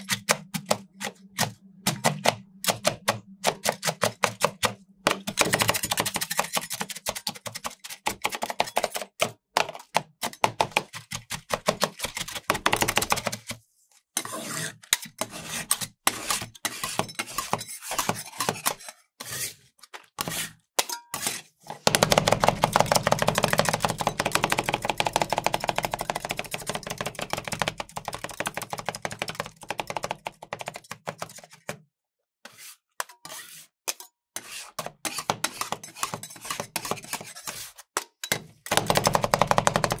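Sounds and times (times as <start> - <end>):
metal spatulas chopping on a plate: 0.0 - 13.5, 14.2 - 19.5, 20.2 - 31.5, 33.0 - 40.0
spatulas scraping: 32.4 - 37.9.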